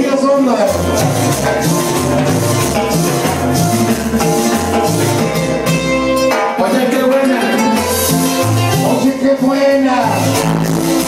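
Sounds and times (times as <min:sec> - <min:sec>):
latin dance music with bass: 0:00.0 - 0:11.0.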